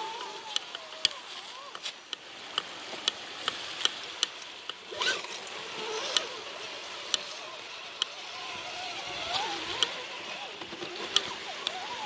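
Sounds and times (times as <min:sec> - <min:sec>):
electric motor whine: 0:00.0 - 0:01.8, 0:04.8 - 0:12.0
running water hiss: 0:00.0 - 0:12.0.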